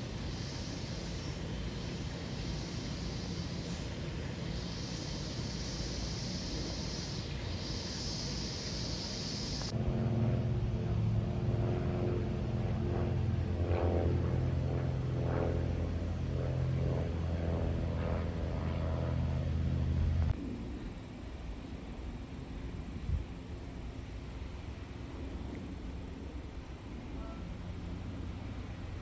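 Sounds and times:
jet airliner rumble overhead: 0:00.0 - 0:29.0
propeller airplane engine droning: 0:00.0 - 0:29.0.

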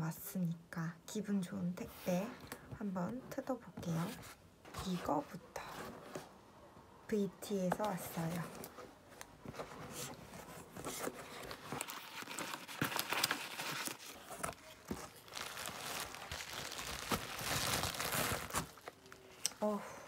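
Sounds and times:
cardboard box handled: 0:07.7 - 0:18.9
packaging crinkling and rustling: 0:07.9 - 0:19.5
bubble wrap crackling: 0:10.6 - 0:19.6.

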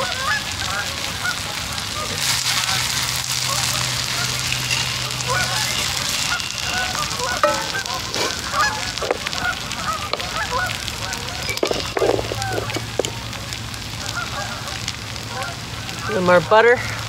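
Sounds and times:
geese honking: 0:00.0 - 0:16.6.

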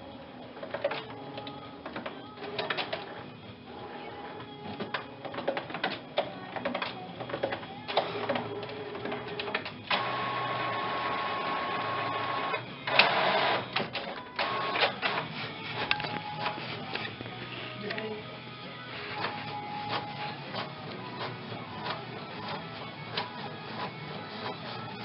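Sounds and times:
printer motor whirring: 0:07.2 - 0:17.3.

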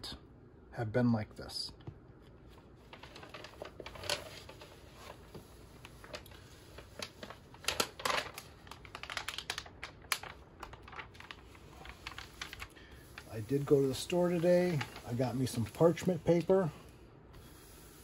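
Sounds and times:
paper crinkling and clicks: 0:02.9 - 0:16.7.

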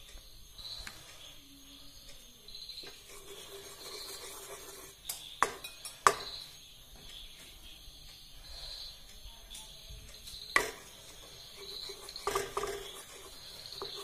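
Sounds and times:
crickets chirping: 0:00.0 - 0:14.0
spoon clinking: 0:02.8 - 0:06.4, 0:11.5 - 0:14.0
spoon knocking against pan: 0:05.0 - 0:06.4, 0:10.5 - 0:10.9, 0:11.6 - 0:14.0.

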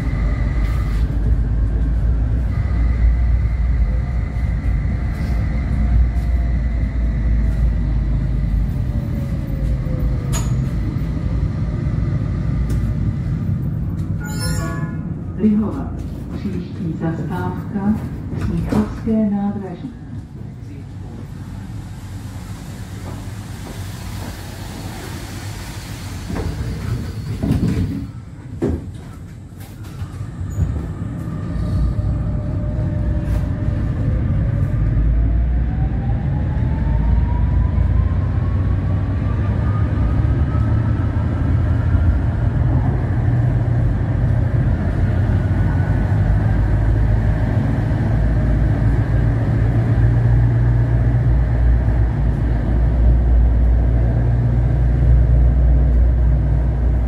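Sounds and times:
tram whine rising in pitch: 0:00.0 - 0:15.6, 0:21.2 - 0:57.0
wheels rumbling on track: 0:00.0 - 0:57.0
knocks inside tram: 0:26.2 - 0:31.0.

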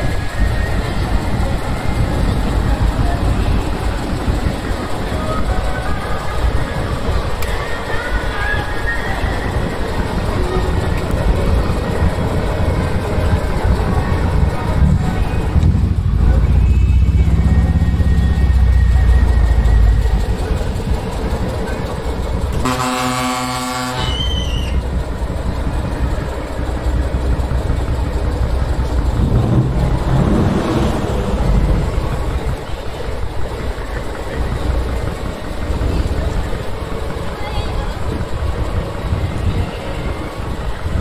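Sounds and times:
heavy truck engines rumbling: 0:00.0 - 0:41.0
air horn blast: 0:22.6 - 0:24.5.

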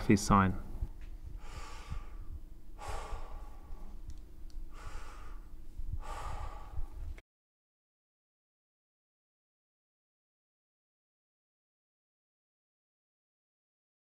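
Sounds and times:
faint steady hum: 0:00.0 - 0:07.2
man breathing deeply: 0:01.2 - 0:07.2.

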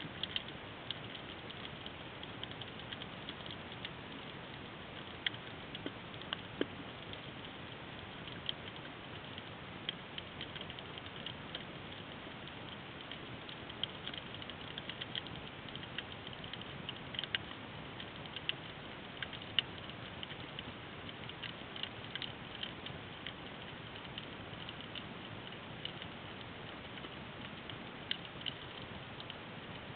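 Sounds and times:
sharp underwater clicks: 0:00.1 - 0:29.9.

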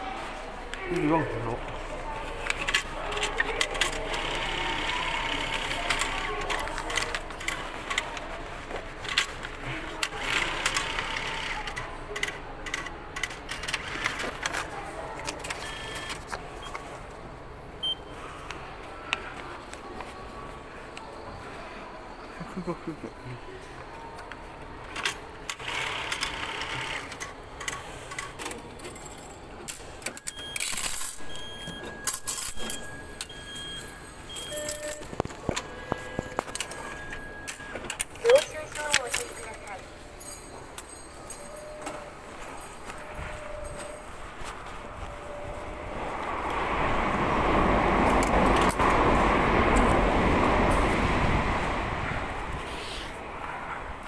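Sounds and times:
short beeps: 0:15.6 - 0:16.8, 0:17.8 - 0:18.2, 0:30.2 - 0:38.9
clicks and metallic clatters: 0:24.2 - 0:44.0
train rumbling past: 0:44.2 - 0:54.0.

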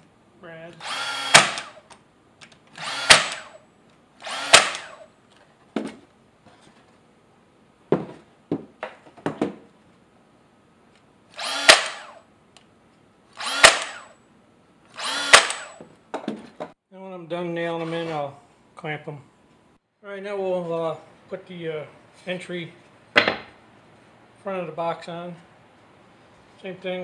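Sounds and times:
nail gun firing: 0:00.8 - 0:01.9, 0:02.7 - 0:03.6, 0:04.2 - 0:05.1, 0:11.4 - 0:12.2, 0:13.4 - 0:14.1, 0:15.0 - 0:15.8.

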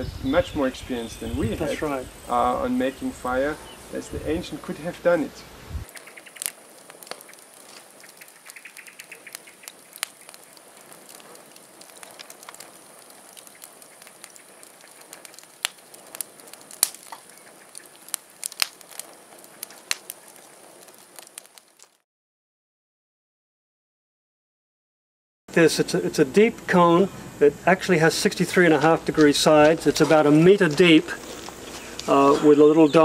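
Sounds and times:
wood fire crackling and popping: 0:05.8 - 0:22.0, 0:27.6 - 0:33.0.

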